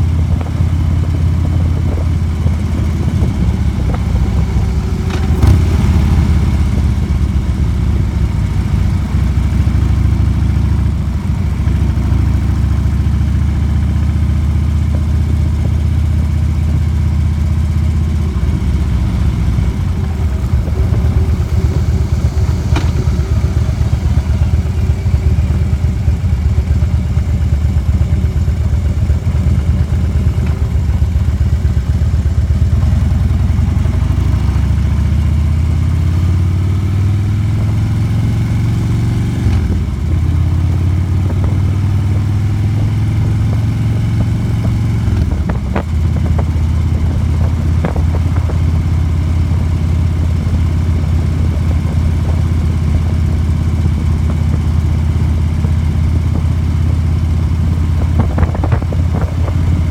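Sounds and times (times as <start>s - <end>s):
motorcycle engine running: 0.0s - 59.9s
wind rush: 0.1s - 7.4s, 18.3s - 25.5s, 57.5s - 59.9s.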